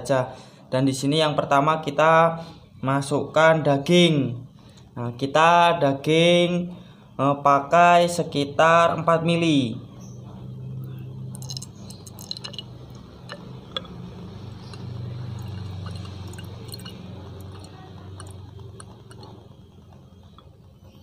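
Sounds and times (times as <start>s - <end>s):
low steady hum: 8.2s - 21.0s
oil dripping into glass: 10.8s - 20.7s.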